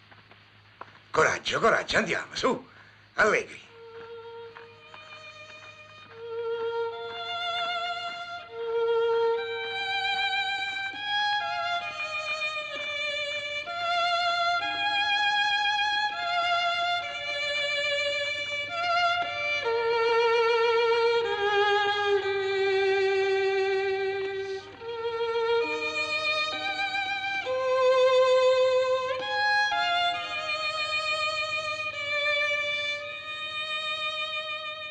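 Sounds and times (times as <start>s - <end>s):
slow violin melody: 3.6s - 34.9s.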